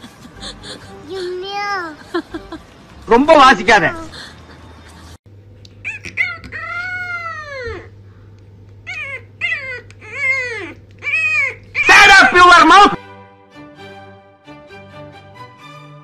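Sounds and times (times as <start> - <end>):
puppy yipping: 5.8 - 6.9, 8.9 - 11.6
puppy howling: 5.8 - 7.8, 8.8 - 12.4.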